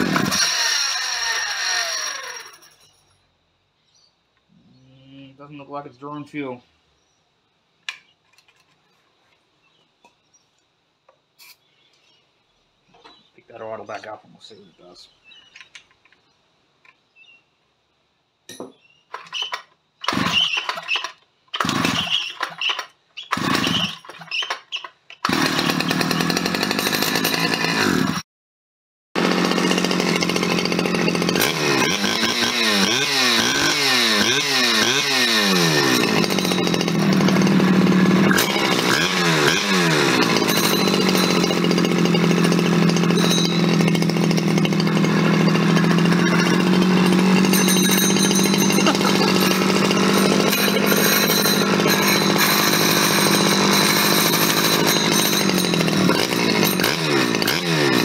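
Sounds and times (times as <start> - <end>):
chainsaw engine revving: 0.0 - 2.8, 19.2 - 28.2, 29.2 - 58.0
chainsaw recoil cranking: 0.0 - 2.9, 19.1 - 28.2, 29.2 - 58.0.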